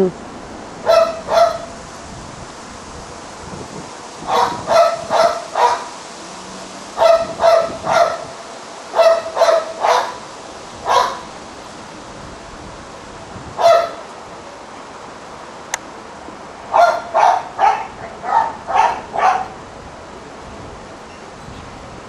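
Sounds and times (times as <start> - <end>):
dog barking: 0.8 - 1.8, 4.3 - 5.9, 7.0 - 8.3, 8.9 - 10.2, 10.9 - 11.3, 13.6 - 14.0, 16.7 - 19.6.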